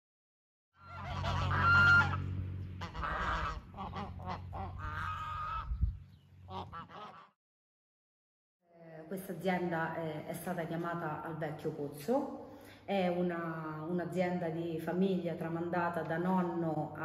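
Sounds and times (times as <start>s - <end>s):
geese honking: 0.8s - 5.8s, 6.4s - 7.4s
low steady hum: 0.8s - 6.8s.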